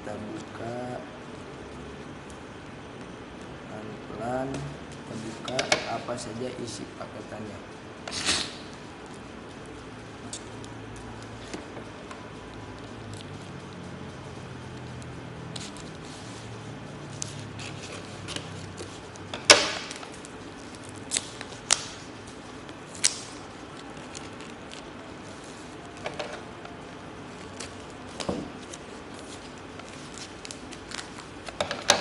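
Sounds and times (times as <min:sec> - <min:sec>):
tape and cardboard crinkling: 0:14.8 - 0:32.0.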